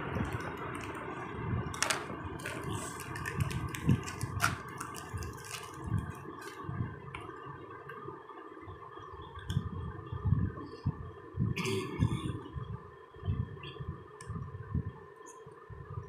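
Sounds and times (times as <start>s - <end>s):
plastic wrapper crinkling: 0.0s - 6.7s
steady background noise: 0.0s - 16.0s.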